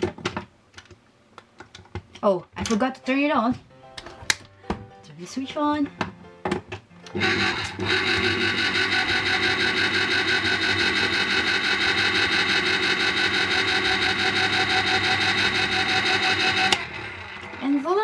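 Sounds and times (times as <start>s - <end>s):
electric tin opener motor whining: 7.1s - 18.0s.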